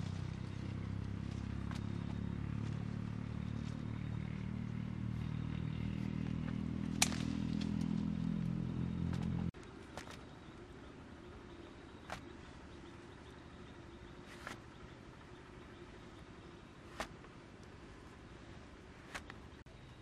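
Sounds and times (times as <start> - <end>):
small engine running: 0.0 - 9.5.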